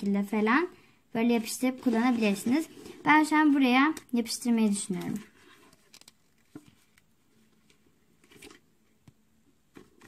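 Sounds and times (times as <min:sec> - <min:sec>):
soft paper rustle: 0:01.3 - 0:09.0.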